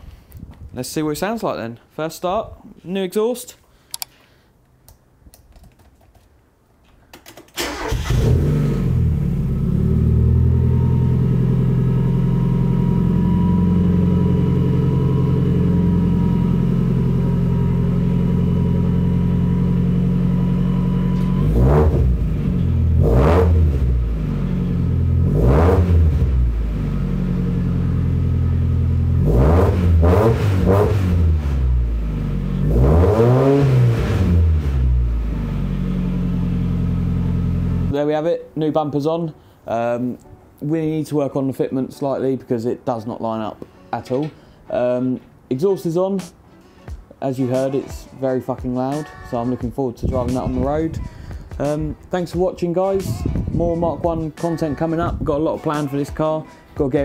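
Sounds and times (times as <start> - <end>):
car engine starting and idling: 7.5 - 37.9
engine revving: 7.6 - 37.9.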